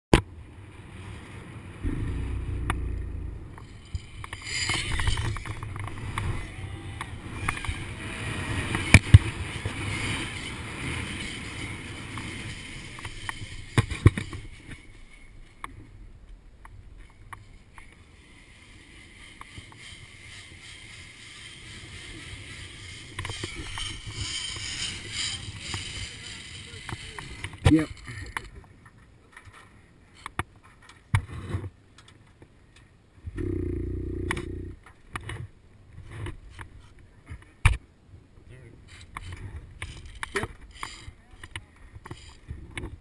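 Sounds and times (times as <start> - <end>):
zipline trolley running on cable: 2.4 - 15.0, 18.2 - 27.6.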